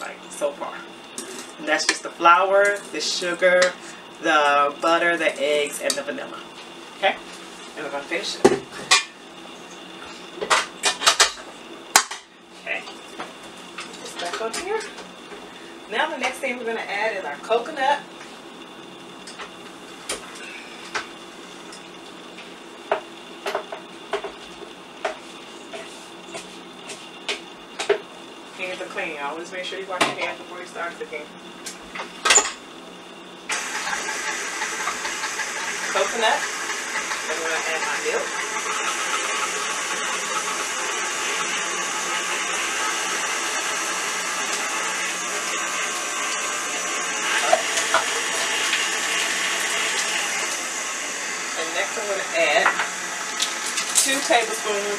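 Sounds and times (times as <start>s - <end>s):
stand mixer motor running: 33.5s - 54.9s.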